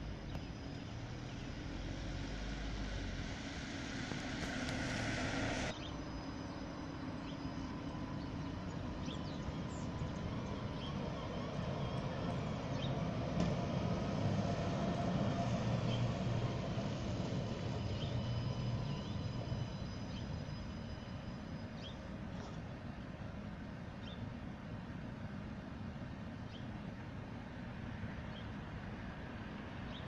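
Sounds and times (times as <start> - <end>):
tram electric drive hum: 0.0 - 30.0
tram wheels rolling on rails: 1.0 - 5.8, 7.5 - 20.8.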